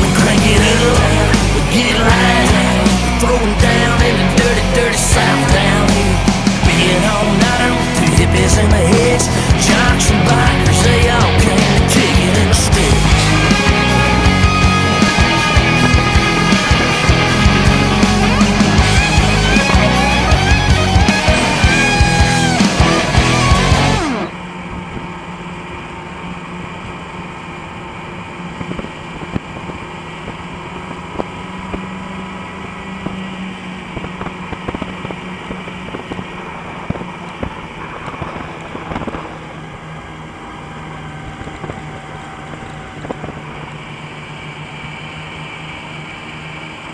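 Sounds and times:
song on soundtrack: 0:00.0 - 0:24.4
snowmobile engine running: 0:00.0 - 0:46.9.

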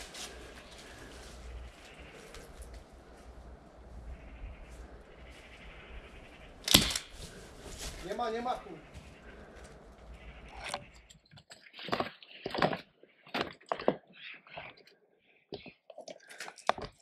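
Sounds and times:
footsteps crunching on rubble: 0:10.7 - 0:14.8.

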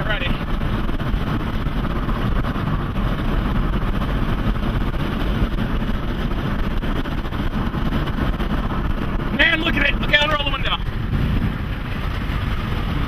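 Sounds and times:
vehicle road and engine noise: 0:00.0 - 0:13.0.

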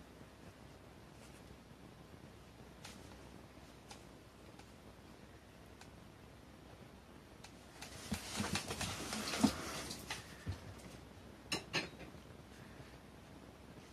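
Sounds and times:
cats scuffling in cardboard box: 0:07.7 - 0:10.7.

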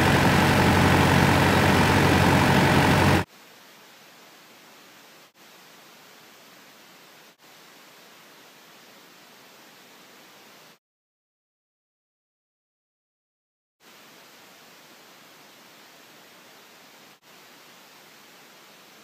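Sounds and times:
boat engine hum: 0:00.0 - 0:03.3
boat rushing through water: 0:00.0 - 0:03.3
faint steady hiss: 0:03.2 - 0:10.8, 0:13.8 - 0:19.0.

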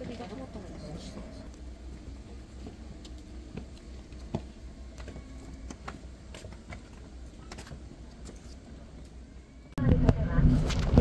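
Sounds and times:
footsteps on stone path: 0:01.6 - 0:09.2
faint low rumble: 0:07.2 - 0:11.0.

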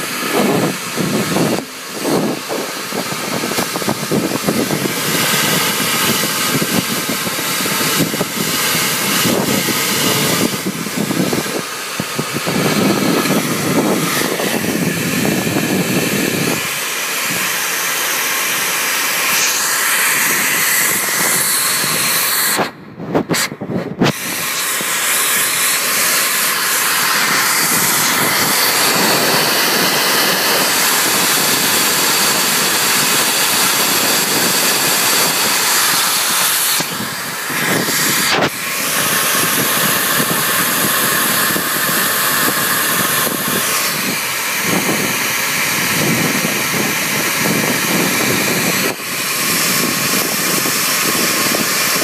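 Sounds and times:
vacuum cleaner running: 0:00.0 - 0:52.0
debris rattling up hose: 0:24.1 - 0:52.0.

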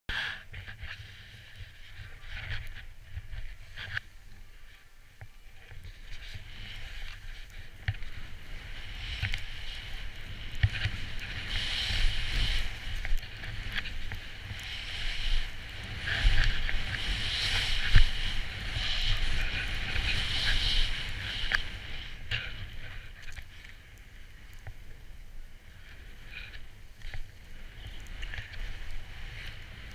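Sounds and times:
skis hissing through powder snow: 0:00.1 - 0:04.9, 0:05.5 - 0:29.9
wind rumble on microphone: 0:00.3 - 0:29.9.

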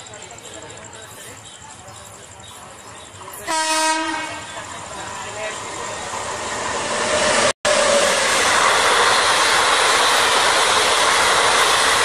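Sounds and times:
train passing at speed: 0:00.0 - 0:12.0.

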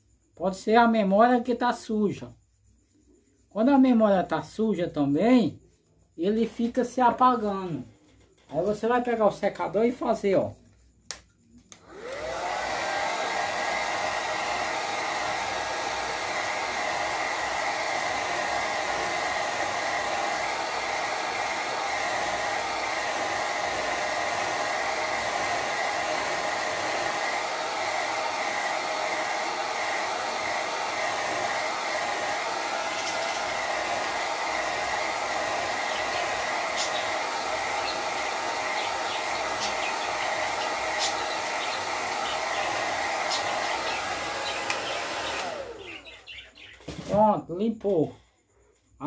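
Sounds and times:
hair dryer blowing: 0:11.7 - 0:46.4.

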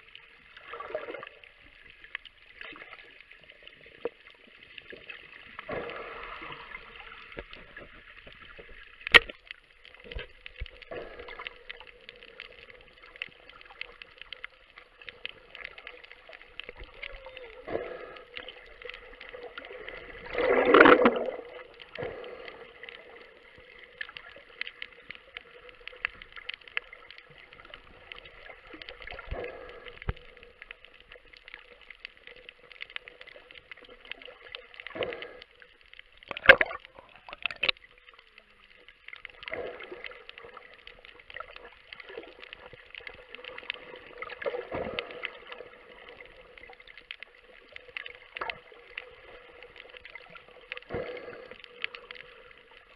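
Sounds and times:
bubbles gurgling: 0:00.0 - 0:01.6, 0:09.9 - 0:30.8, 0:36.2 - 0:37.9, 0:39.2 - 0:52.9
underwater clicks crackling: 0:00.0 - 0:52.9.

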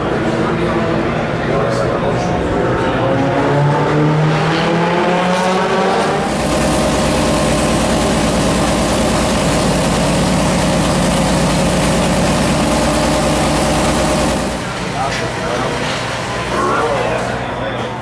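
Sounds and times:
race car engine idling: 0:06.0 - 0:17.5.

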